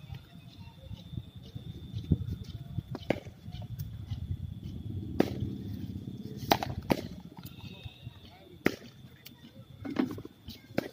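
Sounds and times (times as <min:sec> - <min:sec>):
cricket bat striking balls: 0:05.1 - 0:05.6, 0:06.4 - 0:07.3.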